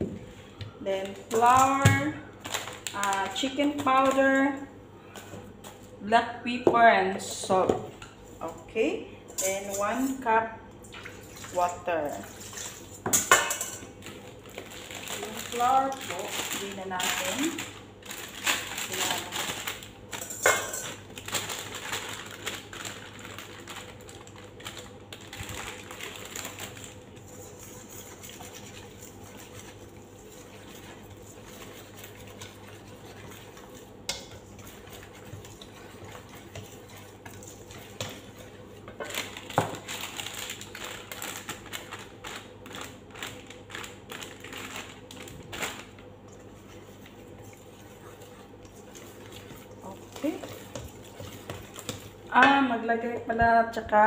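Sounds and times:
wire whisk beating batter: 27.1s - 39.7s, 46.2s - 52.7s.

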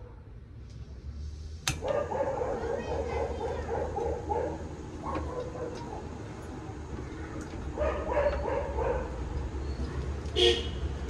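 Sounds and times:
dog barking: 1.8s - 6.1s, 7.8s - 9.2s.

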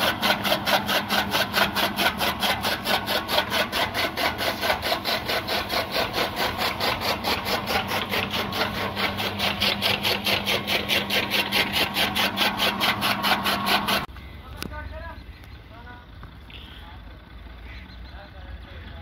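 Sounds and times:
chaff cutter chopping stalks: 0.0s - 14.1s
motor hum: 0.0s - 17.8s.

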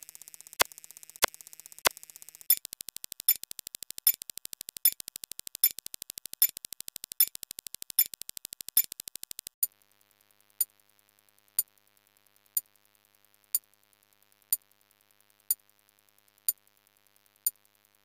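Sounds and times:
fast electronic ticks: 0.0s - 9.7s, 11.5s - 18.0s
sharp electronic clicks: 0.0s - 9.7s.

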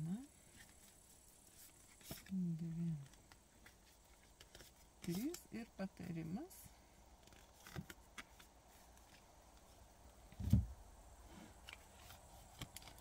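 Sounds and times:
cards being handled: 0.5s - 6.1s, 7.2s - 9.8s, 11.6s - 13.0s
short low thump: 10.4s - 10.8s.

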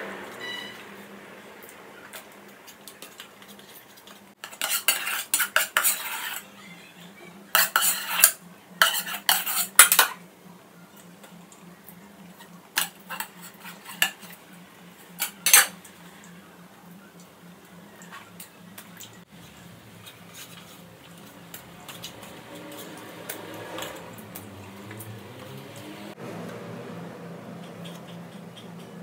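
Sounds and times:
metal spoon scraping metal pot: 4.4s - 6.5s, 7.5s - 10.2s, 12.8s - 14.4s, 15.0s - 15.8s, 20.0s - 24.2s.

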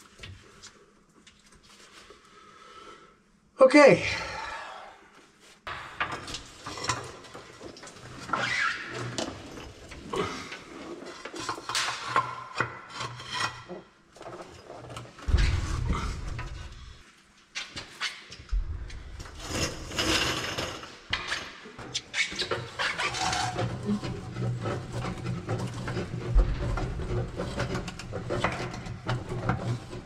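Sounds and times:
hands and tools scraping and knocking: 5.6s - 17.0s, 17.6s - 30.0s.

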